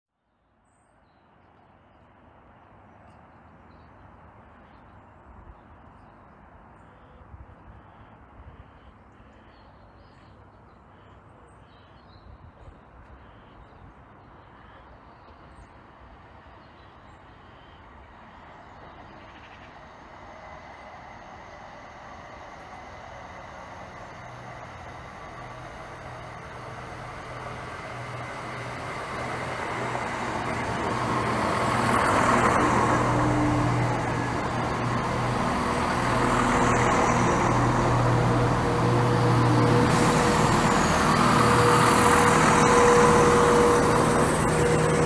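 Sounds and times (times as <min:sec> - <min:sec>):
steady rushing noise: 0:20.1 - 0:45.0.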